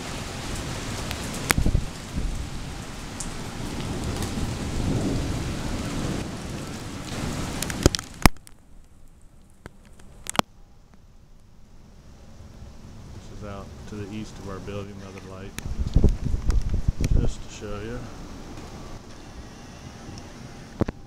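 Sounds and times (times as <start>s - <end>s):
thunder rumbling: 0.0s - 8.3s, 12.4s - 19.1s
heavy rain pouring: 0.0s - 10.4s, 11.9s - 21.0s.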